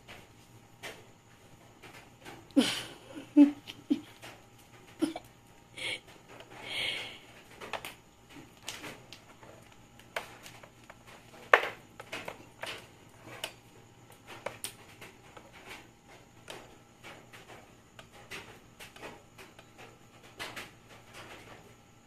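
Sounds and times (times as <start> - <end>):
cord toy striking floor: 10.1 - 13.5.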